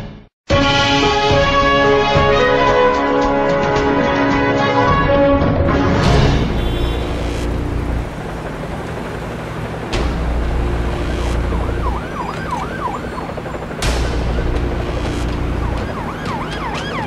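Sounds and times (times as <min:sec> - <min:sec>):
siren yelping: 0:10.8 - 0:13.8, 0:15.0 - 0:17.0.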